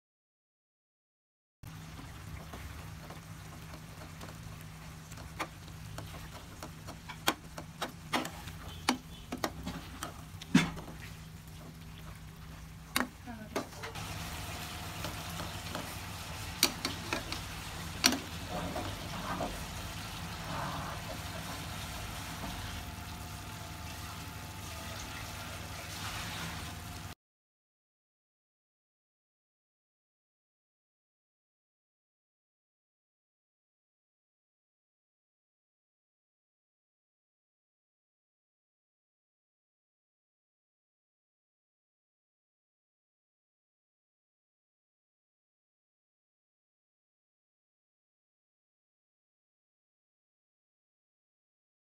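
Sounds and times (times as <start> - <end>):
curry sizzling: 1.7 - 27.2
metal spatula scraping pan: 15.0 - 22.6.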